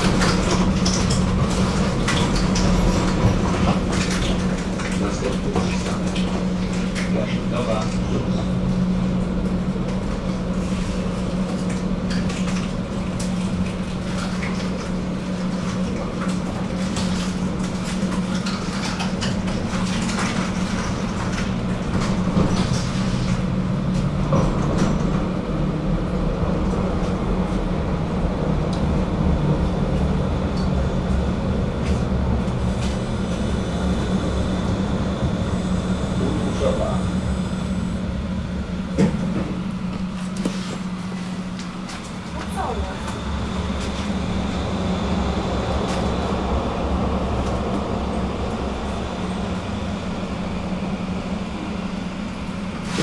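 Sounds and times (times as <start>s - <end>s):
tram humming: 0.0s - 53.0s
high steady whine: 25.2s - 53.0s.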